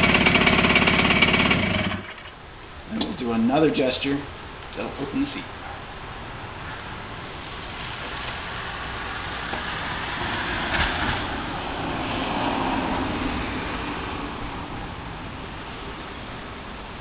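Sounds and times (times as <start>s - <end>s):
car passing: 6.4s - 17.0s.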